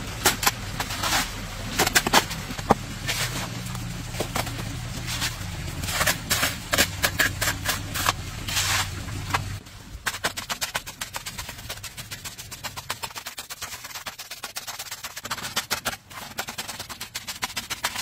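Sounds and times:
low hum: 0.0s - 13.1s
shovel scraping wet mortar: 0.1s - 18.0s.

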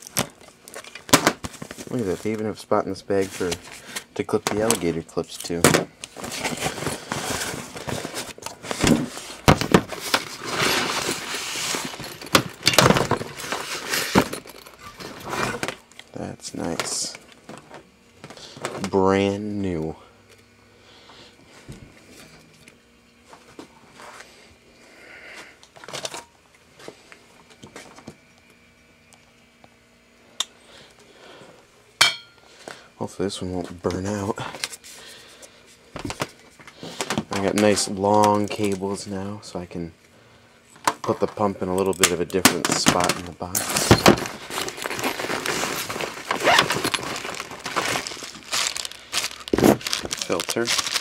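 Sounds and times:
bag and packaging rustling: 0.0s - 5.0s, 6.1s - 15.8s, 42.6s - 51.0s.

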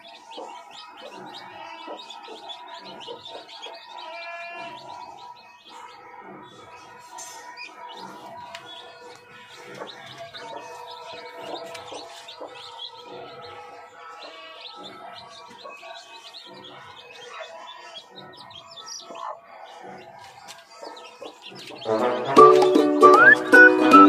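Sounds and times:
chicks peeping: 0.0s - 24.0s
background music: 21.7s - 24.0s.

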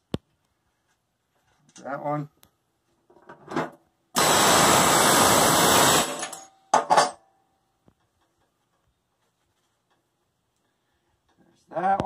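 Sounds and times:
pneumatic air hammer rattling on metal: 4.2s - 7.1s.

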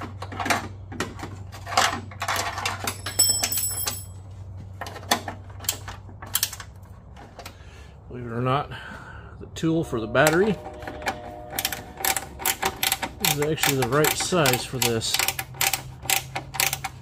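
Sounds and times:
steady low hum: 0.4s - 17.0s
metal hand tools clattering: 1.6s - 4.2s.

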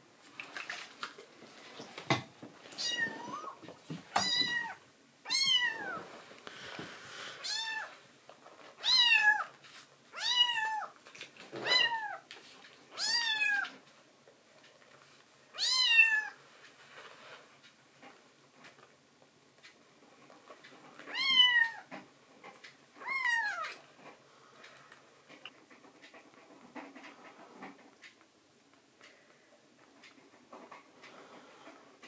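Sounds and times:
kitten meowing: 2.8s - 3.6s, 4.2s - 6.0s, 7.4s - 7.9s.

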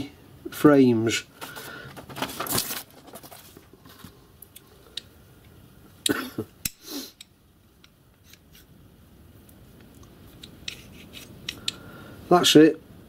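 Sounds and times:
metal parts clicking: 10.3s - 11.8s
metal parts rubbing: 10.3s - 11.8s.

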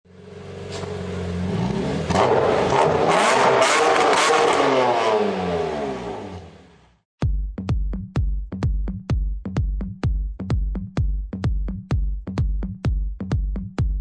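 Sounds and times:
car engine revving: 0.1s - 7.0s.

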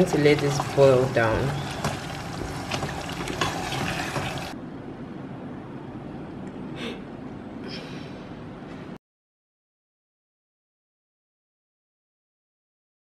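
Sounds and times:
stew bubbling in a pot: 0.0s - 4.6s
wooden spoon stirring: 0.0s - 4.6s.

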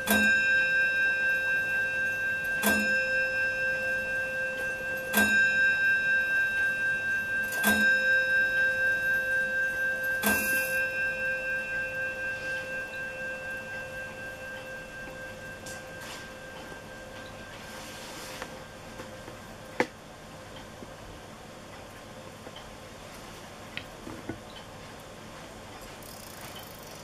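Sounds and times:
clock hammer striking bell: 0.0s - 19.7s.

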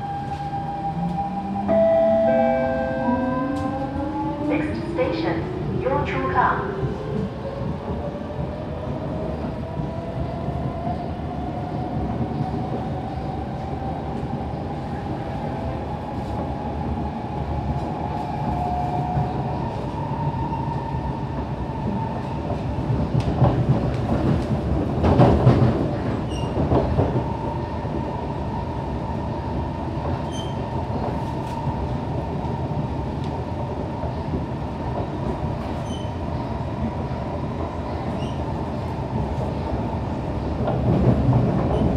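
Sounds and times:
wheels rumbling on rails: 21.3s - 41.9s.

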